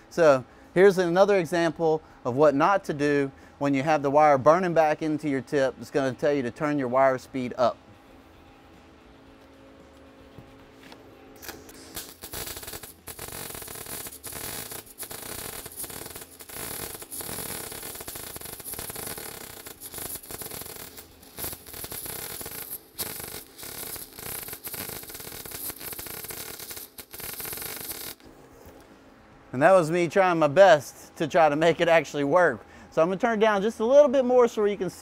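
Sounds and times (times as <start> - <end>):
welding arc crackling hiss: 11.4 - 28.9.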